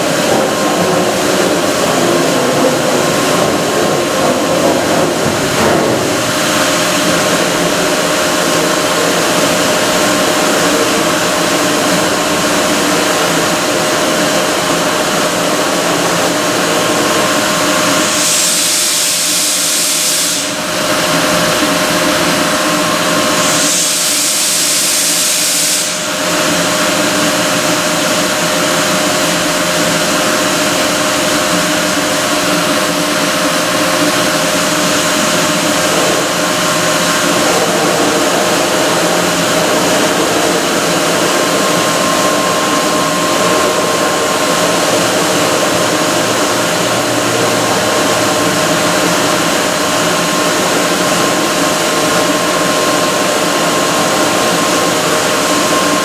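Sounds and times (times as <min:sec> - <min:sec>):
industrial machinery droning: 0:00.0 - 0:56.0
hiss: 0:17.8 - 0:21.1, 0:22.6 - 0:27.2.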